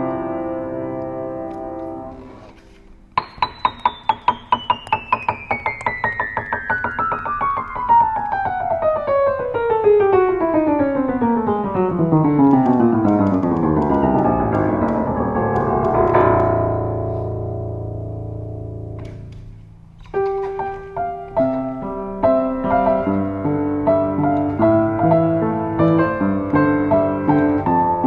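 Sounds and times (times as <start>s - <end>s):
descending piano run: 0.0s - 28.0s
low piano chord ringing: 14.2s - 19.8s.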